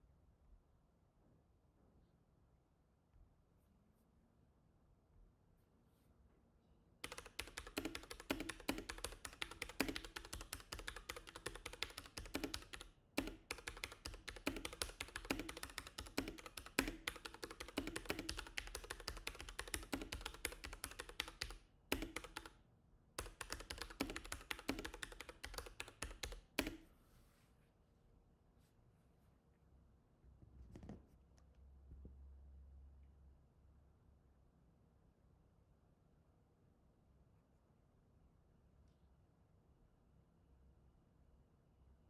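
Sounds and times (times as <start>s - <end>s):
mechanical keyboard typing: 7.0s - 22.6s, 23.2s - 26.8s.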